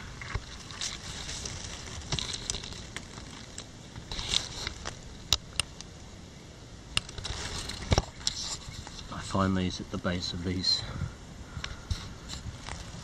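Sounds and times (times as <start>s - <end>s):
dry leaves and twigs crackling: 0.0s - 5.8s, 7.0s - 9.4s, 11.6s - 13.0s
faint steady hiss: 0.0s - 13.0s.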